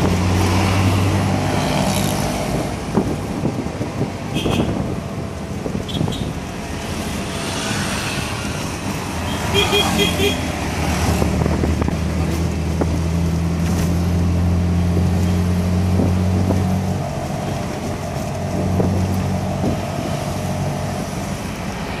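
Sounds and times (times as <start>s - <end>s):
wind rushing past: 0.0s - 9.3s
auto-rickshaw engine running: 0.0s - 22.0s.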